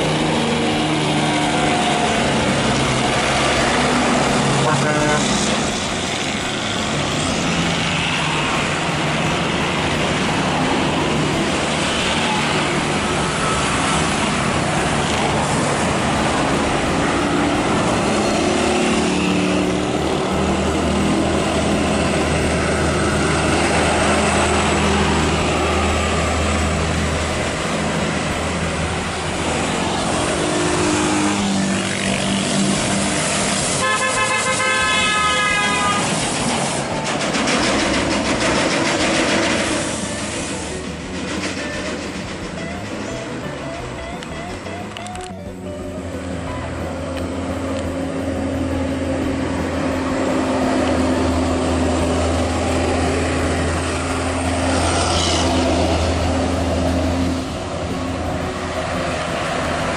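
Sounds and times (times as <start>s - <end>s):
diesel trucks driving past: 0.0s - 59.9s
truck horn: 3.6s - 5.7s, 33.7s - 36.2s, 41.6s - 47.4s.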